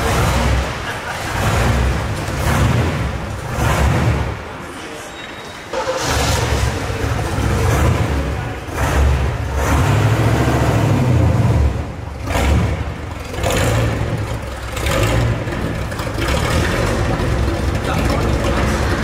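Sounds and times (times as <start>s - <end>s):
car engine driving off: 0.0s - 4.6s, 5.7s - 19.0s.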